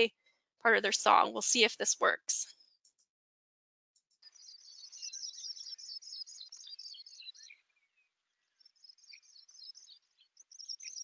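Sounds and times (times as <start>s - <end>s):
bird song of high whistles: 4.2s - 7.6s, 8.6s - 11.0s.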